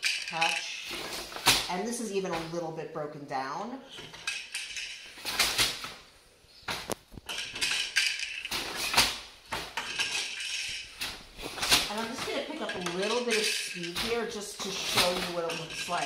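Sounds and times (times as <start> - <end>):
loom wooden clacks and knocks: 0.0 - 2.8, 3.9 - 6.0, 6.7 - 16.0.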